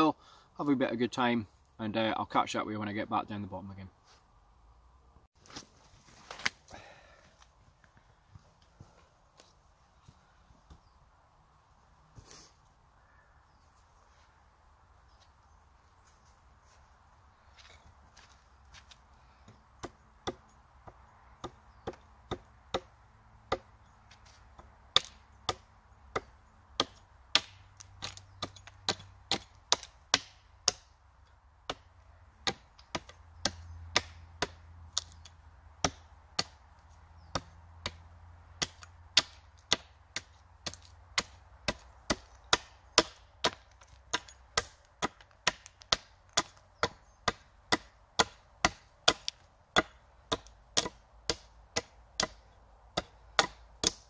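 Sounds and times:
hatchet chopping wood: 19.4s - 31.0s, 31.6s - 38.0s, 38.6s - 54.0s.

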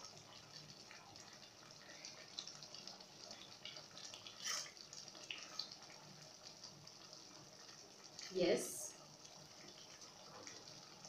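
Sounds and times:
stew bubbling in pot: 0.0s - 11.0s
scrape: 4.4s - 4.7s.

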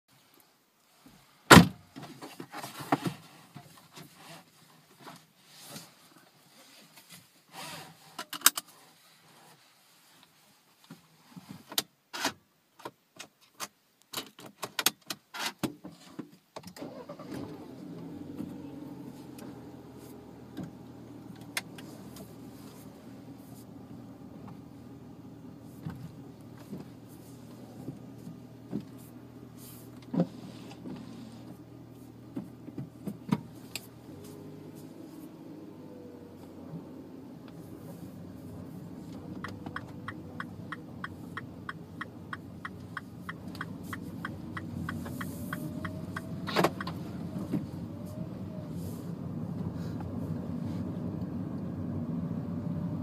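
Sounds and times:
car engine starting and idling: 16.7s - 53.0s.

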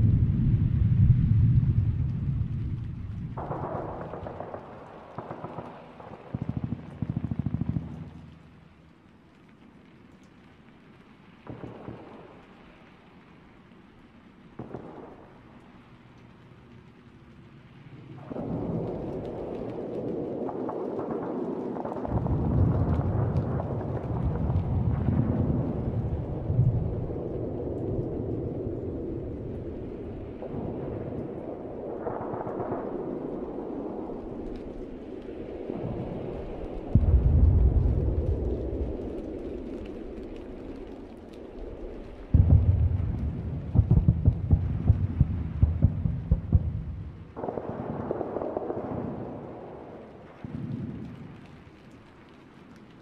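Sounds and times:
deep rumble: 0.0s - 4.5s, 42.0s - 47.9s
thunder rumble: 0.0s - 9.0s, 14.6s - 52.2s
crackling hiss: 0.0s - 53.0s.

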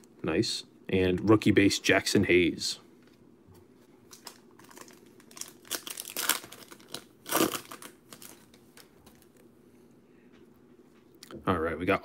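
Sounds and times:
wrapper crinkling and tearing: 4.0s - 9.3s.

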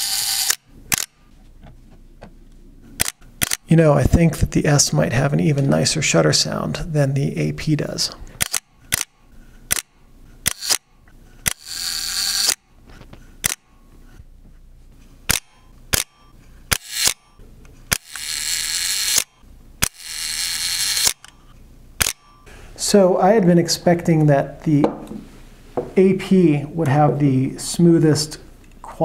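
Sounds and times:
film advance winding rasp: 0.0s - 1.1s, 10.5s - 10.8s, 11.4s - 12.6s, 15.9s - 17.3s, 17.9s - 21.4s
camera shutter clicks: 0.0s - 1.2s, 3.0s - 3.6s, 8.4s - 10.8s, 11.5s - 12.6s, 15.3s - 17.3s, 17.9s - 21.4s, 22.0s - 22.3s.

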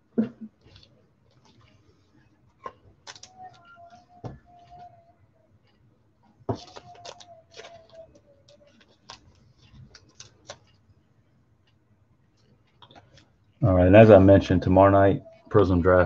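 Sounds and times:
trading cards and plastic rustling: 0.5s - 11.0s.

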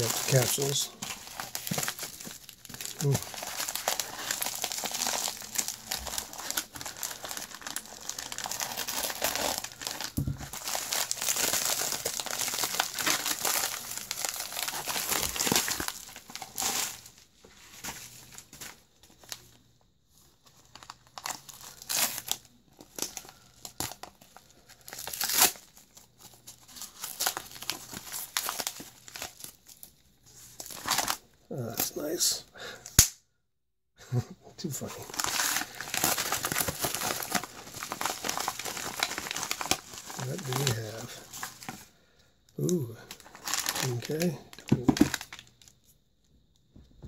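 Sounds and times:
paper crumpling and tearing: 0.0s - 19.4s, 20.5s - 31.2s, 34.9s - 41.8s, 42.6s - 45.7s
paper snap: 32.9s - 33.2s.

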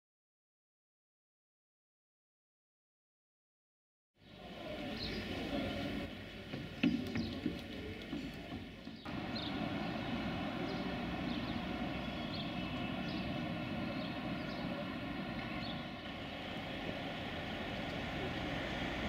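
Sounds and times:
outdoor background rumble: 9.0s - 19.0s.

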